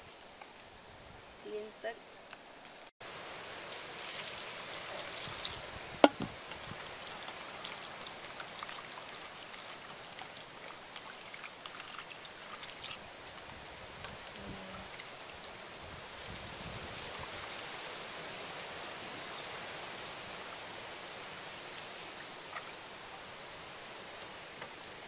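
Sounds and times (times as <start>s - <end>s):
water splashing and trickling: 3.0s - 20.3s, 20.9s - 25.0s
water pouring into a bowl: 3.6s - 5.8s, 6.7s - 16.2s
sharp knock: 6.0s - 6.3s.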